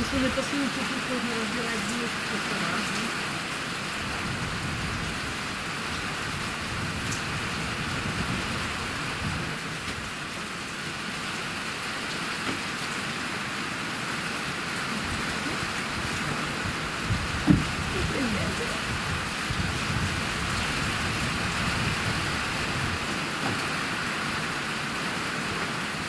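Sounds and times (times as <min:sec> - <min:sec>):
rain hissing: 0:00.0 - 0:26.0
wind rumbling on microphone: 0:03.7 - 0:10.2, 0:14.9 - 0:23.7.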